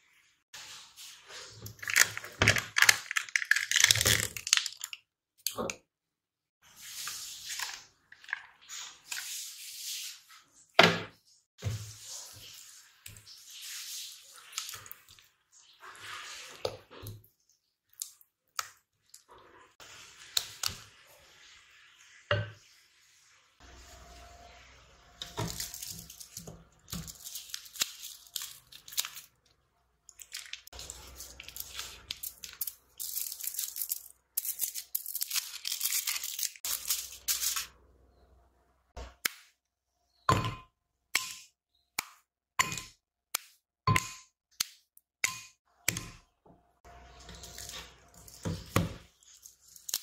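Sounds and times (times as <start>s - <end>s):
scraping or crinkling: 23.6s - 37.8s, 46.9s - 50.0s.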